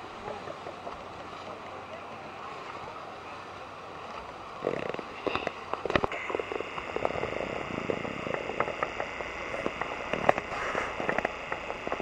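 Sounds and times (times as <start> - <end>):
boat and sea noise: 0.0 - 12.0
lava crackling and hissing: 4.7 - 12.0.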